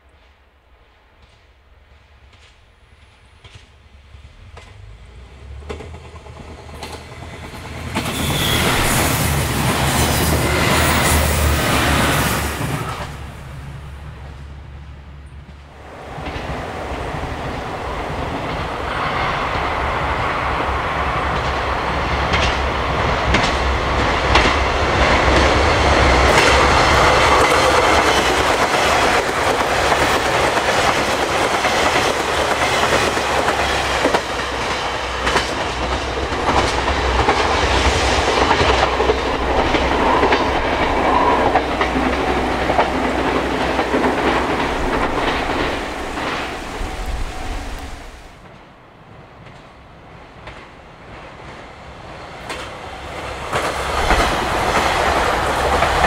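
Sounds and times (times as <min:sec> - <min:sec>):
rush of train wheel noise: 0:00.0 - 0:56.0
wheels clattering over rail joints: 0:22.2 - 0:48.3.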